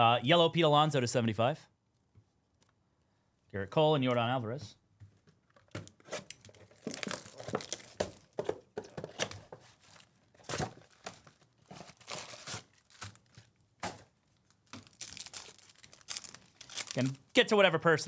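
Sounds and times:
plastic and cardboard crinkling tearing: 0:05.5 - 0:17.2
foil packs rustling: 0:06.0 - 0:08.4, 0:09.0 - 0:17.2.

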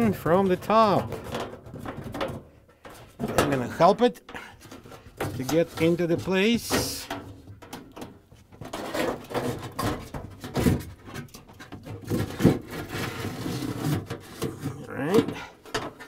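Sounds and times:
panel scraping against plastic: 0:08.6 - 0:16.0.

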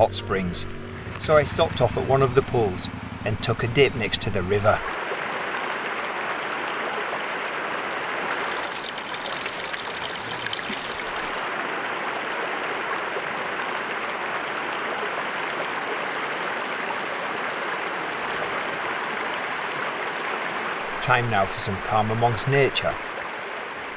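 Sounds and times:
river water rushing over rocks: 0:04.8 - 0:23.9.

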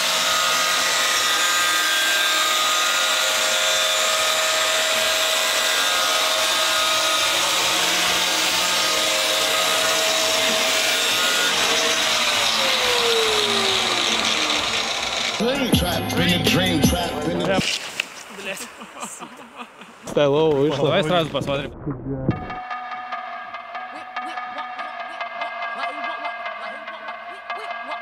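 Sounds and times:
angle grinder grinding: 0:00.0 - 0:17.8.

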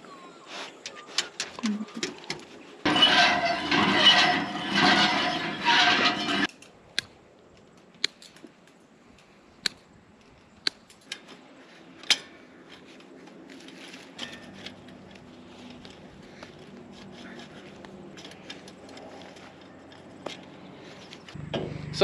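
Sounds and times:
wire mesh rattling over ground: 0:01.1 - 0:06.7, 0:10.8 - 0:22.0.

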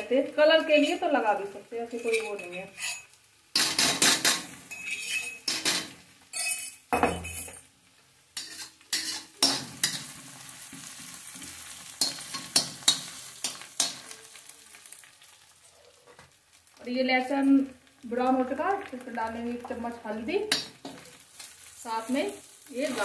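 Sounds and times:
oil sizzling: 0:00.0 - 0:23.0
metal spatula scraping a pan: 0:01.8 - 0:07.6, 0:08.4 - 0:14.1.

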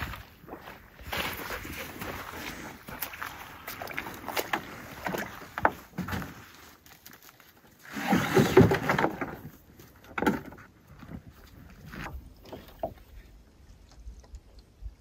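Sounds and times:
pack thudding and scraping on hull: 0:01.0 - 0:06.9, 0:07.8 - 0:12.9.

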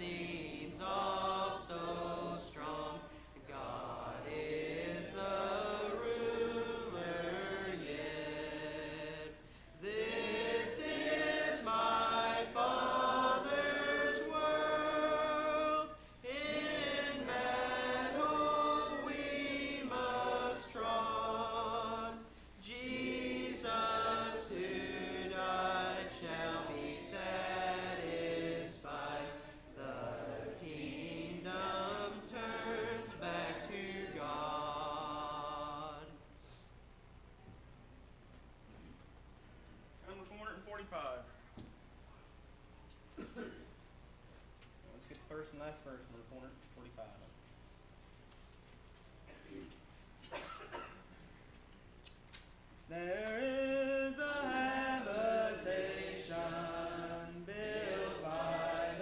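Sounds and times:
congregation singing a hymn: 0:00.0 - 0:36.3, 0:52.9 - 0:59.0.

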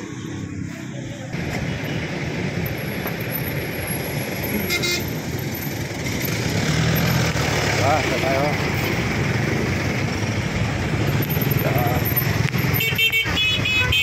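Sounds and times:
street traffic engines: 0:00.0 - 0:14.0
vehicle horn toot: 0:04.6 - 0:05.1, 0:12.8 - 0:14.0.

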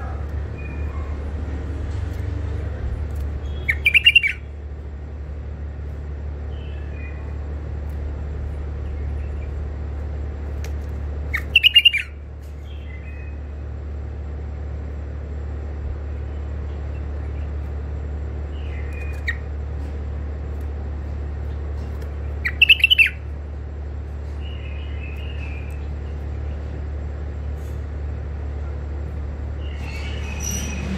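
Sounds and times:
steady low hum: 0:00.0 - 0:30.9
bird calling: 0:03.4 - 0:04.5, 0:11.3 - 0:12.2, 0:22.4 - 0:23.2.

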